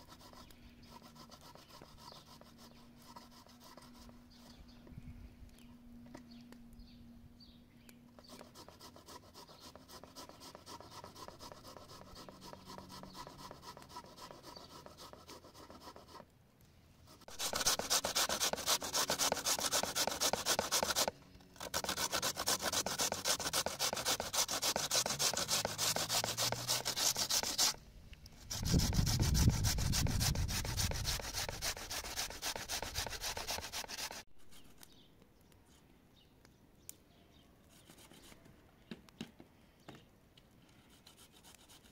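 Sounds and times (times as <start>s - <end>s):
potato grating on metal grater: 17.2s - 27.8s, 28.5s - 34.6s.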